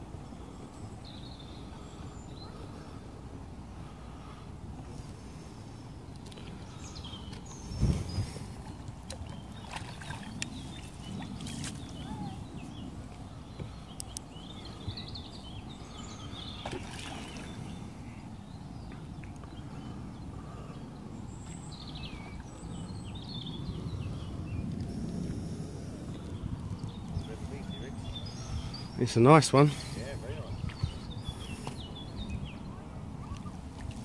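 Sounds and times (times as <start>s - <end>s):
wind rumble on microphone: 0.0s - 34.0s
birds chirping: 6.1s - 25.4s, 26.0s - 33.7s.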